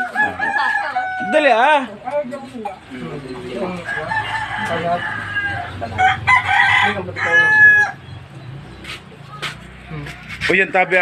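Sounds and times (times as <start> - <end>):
rooster crowing: 0.0 - 1.8, 3.8 - 8.1.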